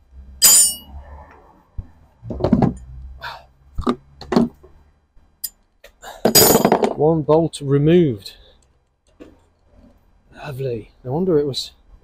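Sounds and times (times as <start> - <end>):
metal tools clinking: 0.4 - 0.9, 6.3 - 7.0.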